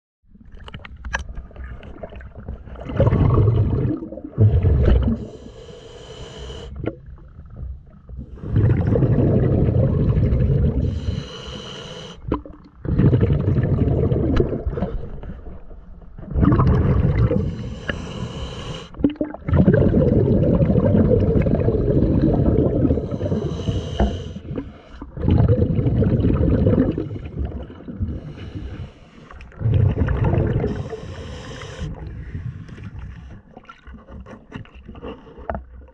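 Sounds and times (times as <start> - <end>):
rush of exhaled bubbles: 1.5 - 5.6, 6.7 - 11.2, 12.2 - 34.0
hissing regulator inhale: 5.2 - 6.8, 10.8 - 12.2, 17.4 - 19.0, 22.9 - 25.1, 28.2 - 29.5, 30.7 - 33.3.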